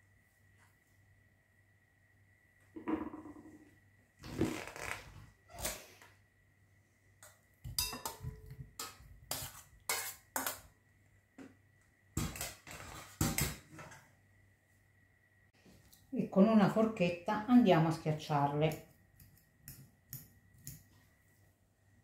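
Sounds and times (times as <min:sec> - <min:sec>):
metal spoon clinking on steamer basket: 0:07.7 - 0:09.0.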